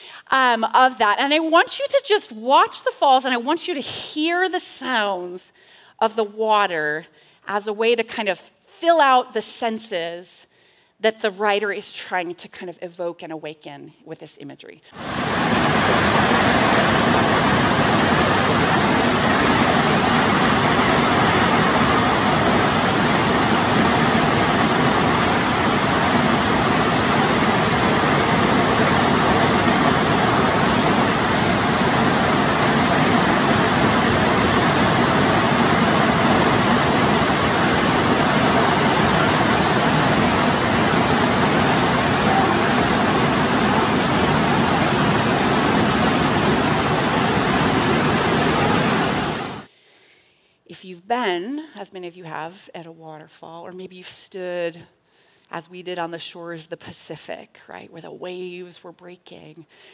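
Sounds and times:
waterfall rushing onto boulders: 15.0s - 49.7s.

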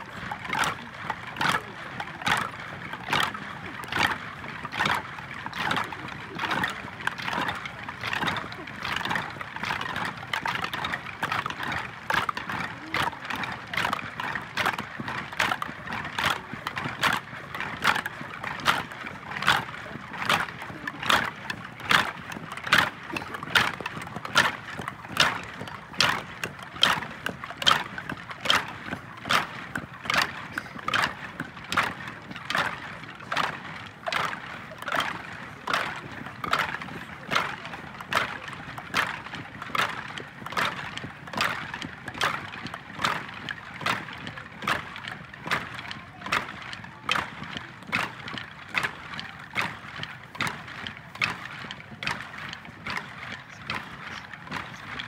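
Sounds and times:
crowd murmur: 0.0s - 55.0s.

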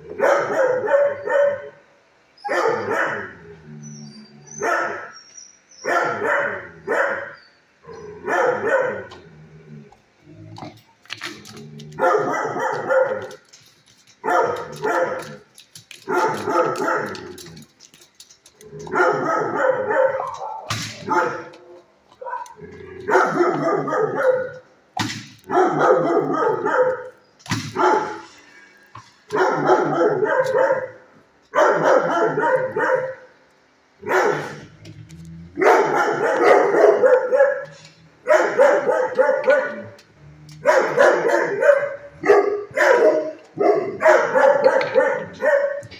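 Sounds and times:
dogs barking: 0.0s - 3.5s, 4.5s - 5.2s, 5.8s - 7.4s, 8.0s - 9.2s, 11.9s - 17.6s, 18.8s - 24.7s, 25.5s - 28.4s, 29.3s - 33.4s, 34.0s - 34.7s, 35.6s - 45.9s.

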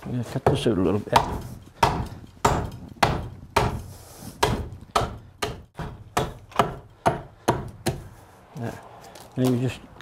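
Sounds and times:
axe chopping wood: 0.4s - 8.1s.

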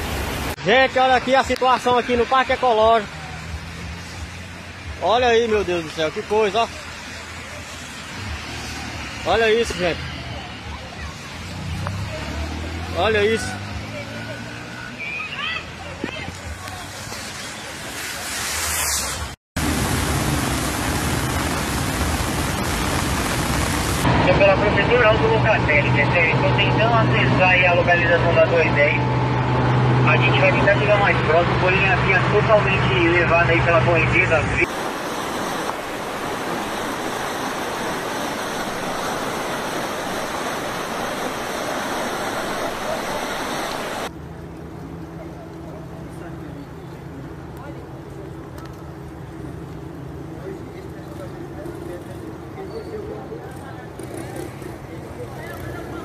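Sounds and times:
heavy rain and floodwater rushing: 0.0s - 44.1s.

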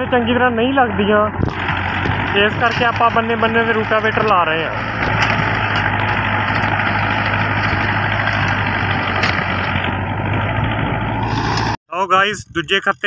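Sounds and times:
tractor diesel engine running: 0.0s - 13.0s
rotavator churning soil: 1.4s - 11.8s.

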